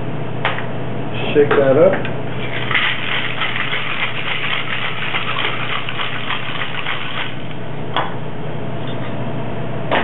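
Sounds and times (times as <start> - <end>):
ice rattling in cocktail shaker: 2.4 - 7.4.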